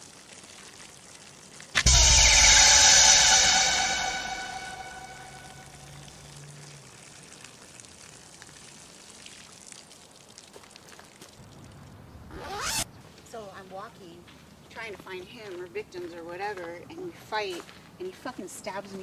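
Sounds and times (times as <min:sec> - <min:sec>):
man urinating onto leaves: 0:00.0 - 0:01.8, 0:06.4 - 0:12.0
loud rising sweep: 0:01.8 - 0:06.1
music cue: 0:01.8 - 0:06.1.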